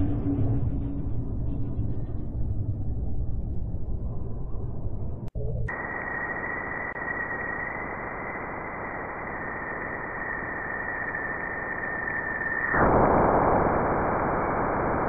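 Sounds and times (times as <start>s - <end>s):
steady hiss: 5.7s - 15.0s.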